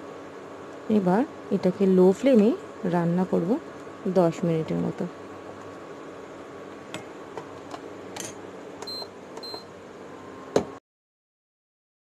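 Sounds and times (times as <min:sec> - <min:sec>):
steady hum: 0:00.0 - 0:10.8
cooktop beeping: 0:08.8 - 0:09.7.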